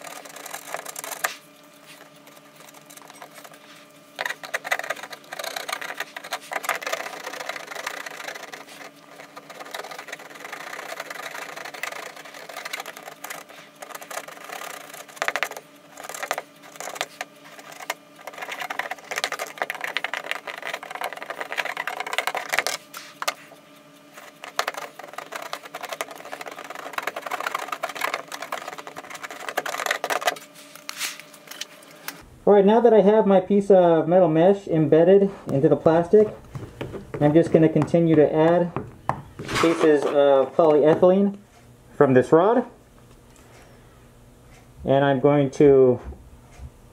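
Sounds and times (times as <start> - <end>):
welder tip scraping wire mesh: 0.0 - 31.7
faint steady hum: 0.0 - 46.9.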